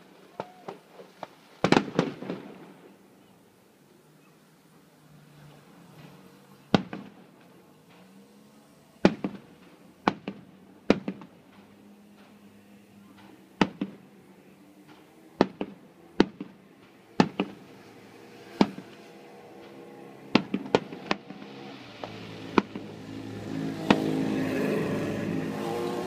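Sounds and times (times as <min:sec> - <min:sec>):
firework shells bursting: 0:14.9 - 0:17.7, 0:18.5 - 0:23.0.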